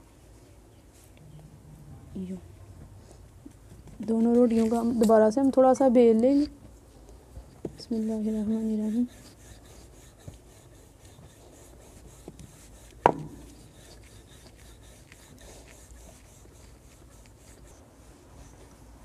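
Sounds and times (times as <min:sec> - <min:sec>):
rolling pin rubbing over dough: 0:07.5 - 0:19.0.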